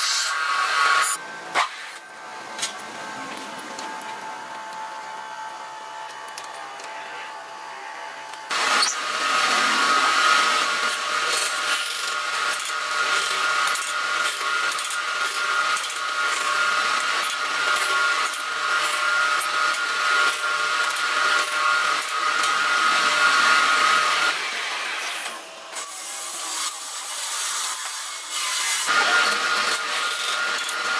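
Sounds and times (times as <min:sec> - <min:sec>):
tool cutting wood hissing: 0:00.0 - 0:02.0, 0:08.5 - 0:19.4, 0:22.4 - 0:30.9
wood lathe whine: 0:02.9 - 0:30.9.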